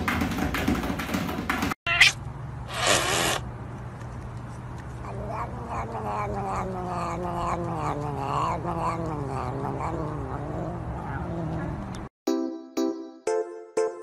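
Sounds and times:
cat yowling: 1.9s - 2.2s, 5.0s - 11.8s.

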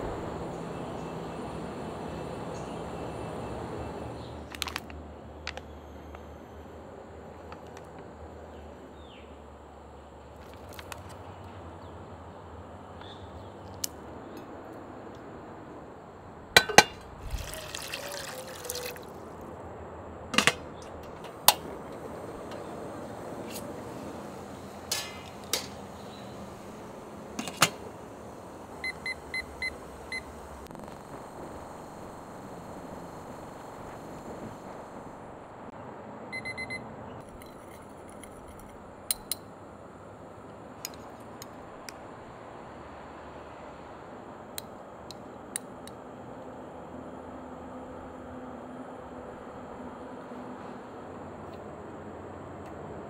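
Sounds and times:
pot lid clink: 16.6s - 17.1s
cookware clinking: 16.6s - 18.5s
water poured into a pot: 17.2s - 19.4s
kitchen timer beeping: 36.3s - 36.8s.

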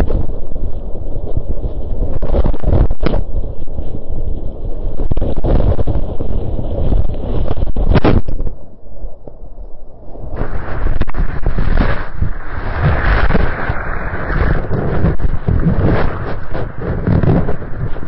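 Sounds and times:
wind buffeting: 0.0s - 18.0s
water slapping microphone: 10.1s - 18.0s.

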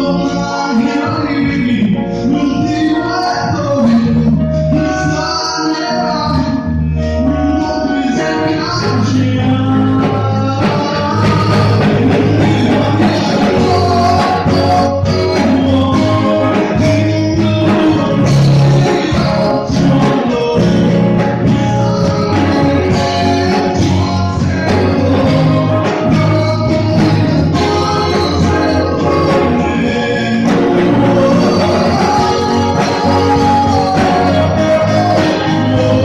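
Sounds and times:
electric guitars: 0.0s - 36.0s
man singing into microphone: 0.0s - 36.0s
steady beat: 8.4s - 36.0s.

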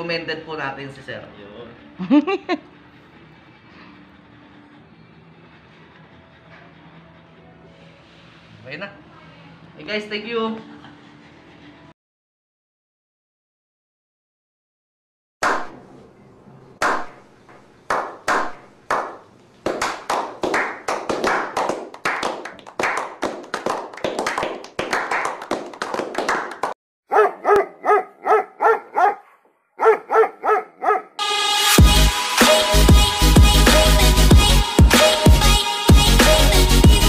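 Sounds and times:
hand claps and applause: 16.8s - 17.1s, 17.9s - 26.8s
dog barking: 27.1s - 31.2s.

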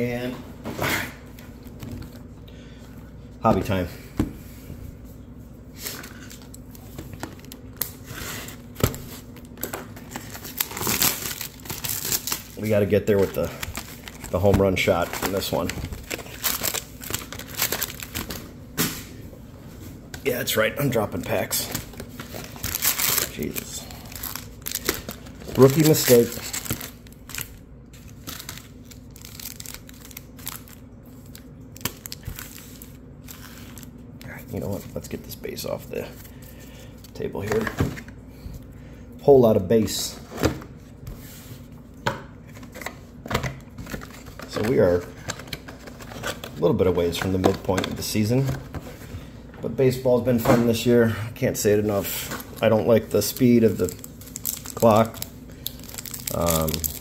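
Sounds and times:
wrapping crinkling and tearing: 5.8s - 18.5s, 21.4s - 35.2s, 51.9s - 57.0s.

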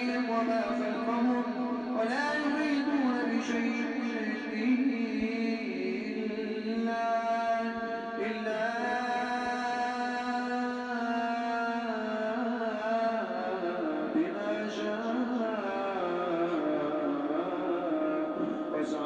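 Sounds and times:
person chanting recitation: 0.0s - 19.0s.

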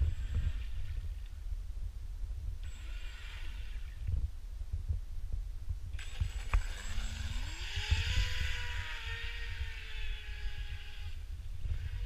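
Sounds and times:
electric motor whining: 2.6s - 4.0s, 6.0s - 12.0s.

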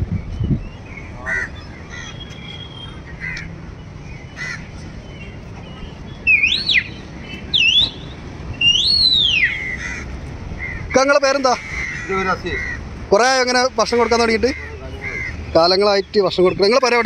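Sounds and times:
crows cawing: 1.2s - 2.4s, 3.1s - 3.5s, 4.4s - 4.7s, 9.3s - 15.9s.

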